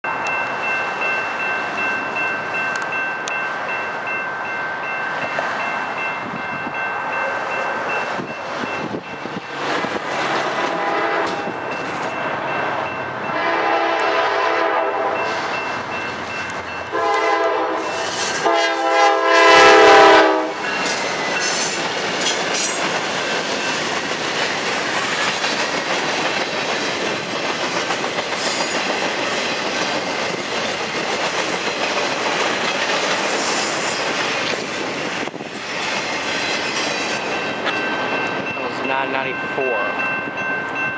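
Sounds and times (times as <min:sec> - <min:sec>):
locomotive air horn blasts: 0:10.3 - 0:11.6, 0:13.3 - 0:15.3, 0:16.9 - 0:20.6.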